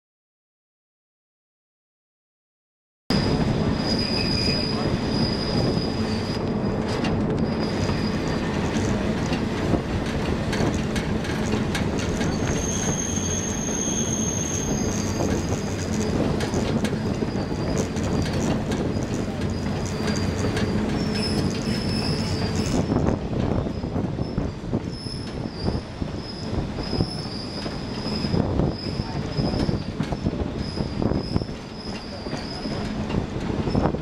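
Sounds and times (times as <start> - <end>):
high-pitched wheel squeal: 3.1 - 6.8, 7.4 - 9.0, 12.0 - 33.0
train wheels rumbling and clattering: 3.1 - 34.0.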